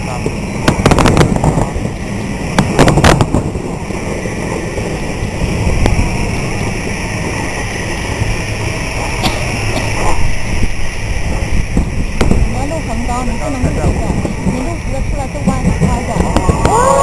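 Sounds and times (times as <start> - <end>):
fireworks exploding: 0.0 - 7.4.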